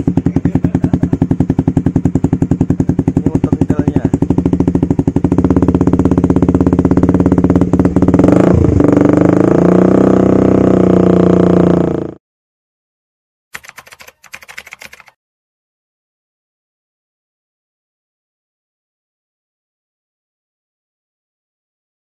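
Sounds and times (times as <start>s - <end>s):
motorcycle engine revving: 0.0s - 12.2s.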